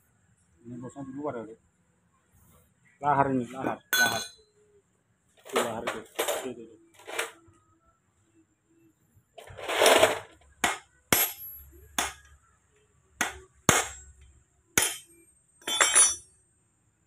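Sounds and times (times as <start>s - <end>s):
hammer striking metal: 3.9s - 4.4s, 10.6s - 12.3s, 13.2s - 14.2s, 14.8s - 16.3s
metal parts clattering: 5.4s - 7.4s, 9.4s - 10.4s, 15.6s - 16.2s.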